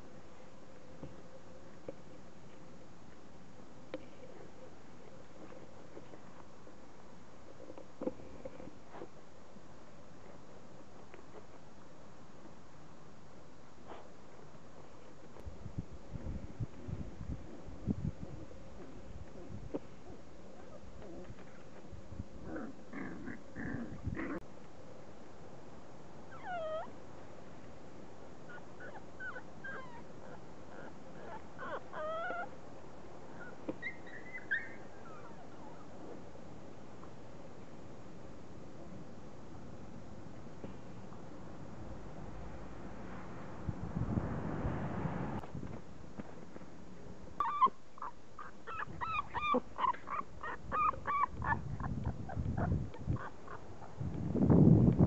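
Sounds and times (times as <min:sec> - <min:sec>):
puppies whimpering and yipping: 0:26.3 - 0:26.9, 0:28.5 - 0:32.5, 0:33.4 - 0:35.9, 0:47.4 - 0:53.9.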